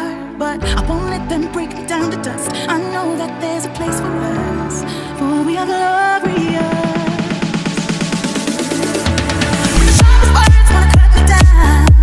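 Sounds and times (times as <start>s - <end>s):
electronic music with pounding bass: 0.6s - 4.0s, 5.5s - 12.0s
dance music with quick beat: 6.2s - 12.0s.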